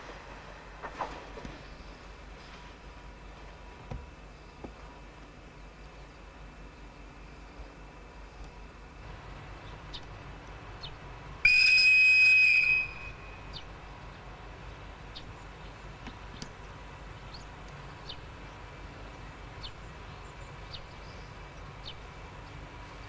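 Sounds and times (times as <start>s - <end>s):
locomotive whistle: 11.4s - 13.6s.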